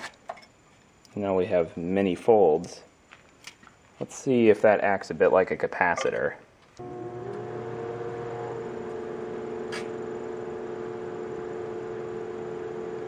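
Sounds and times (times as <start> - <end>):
microwave oven humming: 6.8 - 13.0.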